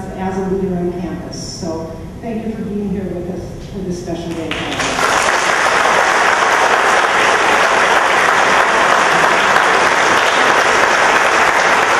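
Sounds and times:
audience applauding: 4.5s - 11.9s.

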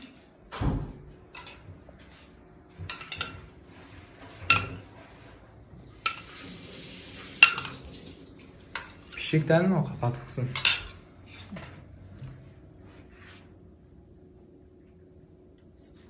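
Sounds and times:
metal kitchenware clinking: 1.3s - 1.7s, 2.8s - 3.5s, 4.4s - 5.0s, 7.3s - 7.9s, 8.7s - 9.4s, 10.5s - 11.0s.

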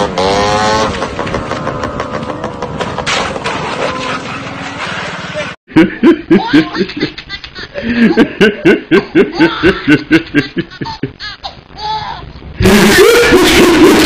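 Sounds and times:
man laughing hard: 5.7s - 11.3s, 12.6s - 14.0s.

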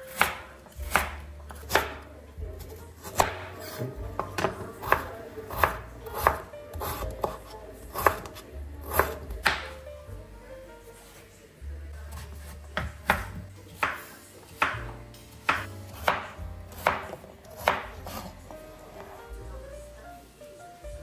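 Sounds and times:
knife chopping on wooden board: 0.1s - 9.8s, 12.1s - 19.2s.

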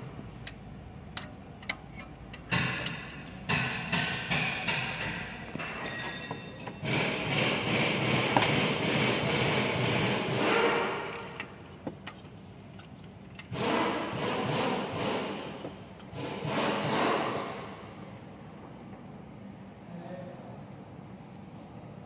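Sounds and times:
wrench scraping metal: 1.6s - 3.0s.

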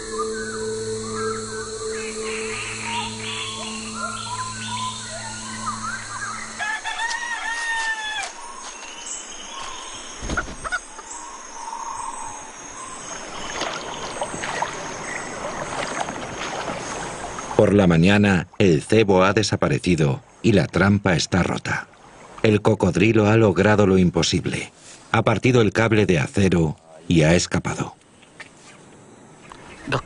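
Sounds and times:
birds calling: 0.0s - 18.2s, 28.0s - 30.0s
rooster crowing: 5.3s - 8.4s.

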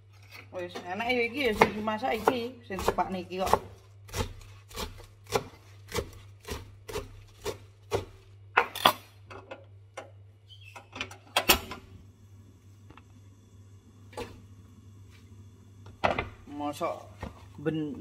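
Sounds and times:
knife chopping cabbage on wood: 1.4s - 8.3s.

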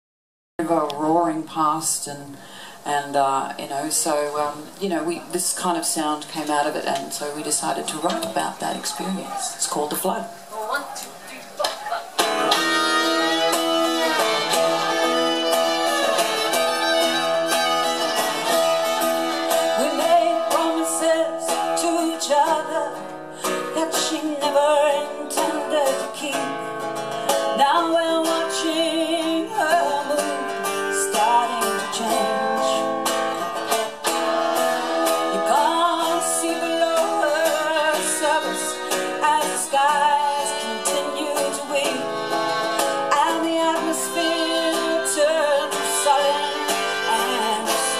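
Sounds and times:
woman singing: 0.6s - 9.4s, 19.4s - 26.8s, 27.4s - 33.1s, 34.6s - 42.4s, 43.0s - 47.9s
acoustic guitar: 0.6s - 47.9s
fiddle: 12.3s - 21.0s, 33.3s - 47.9s.

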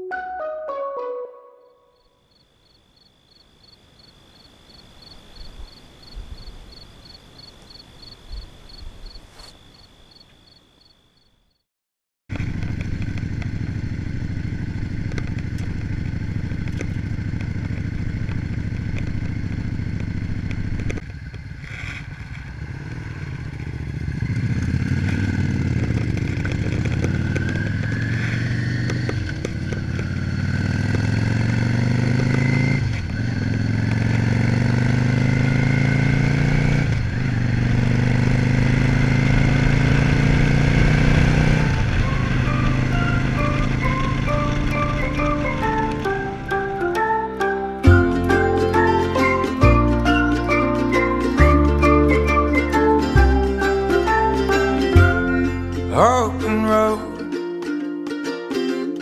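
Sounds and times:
steady high tone: 0.0s - 2.3s, 51.6s - 57.4s
wind noise: 5.2s - 9.4s
motorcycle engine running: 12.3s - 49.7s.

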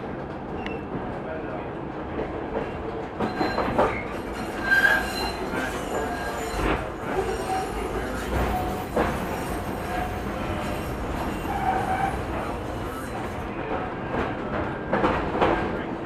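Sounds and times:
streetcar wheels rumbling: 0.0s - 16.0s
wheel squeals: 3.2s - 13.4s.

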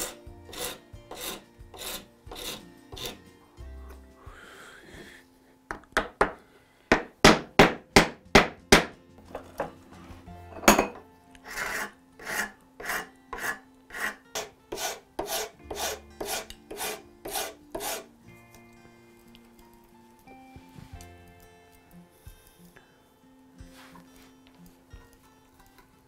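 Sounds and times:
hand file rasping on wood: 0.0s - 3.3s, 11.4s - 18.1s.

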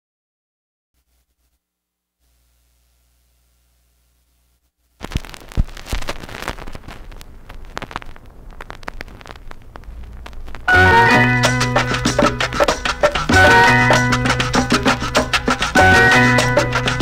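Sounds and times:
vinyl surface crackle and pops: 2.2s - 17.0s
stylus landing on vinyl record: 5.0s - 13.4s.

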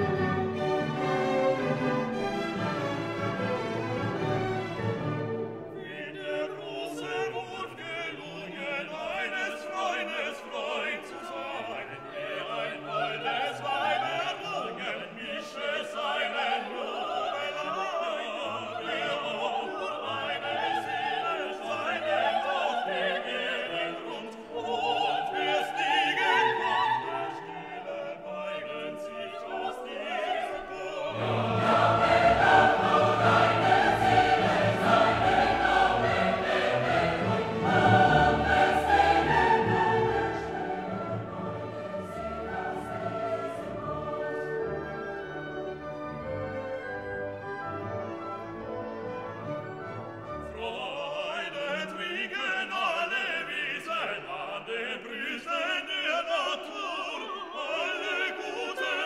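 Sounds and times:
orchestra playing: 0.0s - 6.4s, 30.0s - 51.0s
operatic singing: 0.0s - 46.1s, 50.3s - 59.0s
choir singing: 0.0s - 59.0s.

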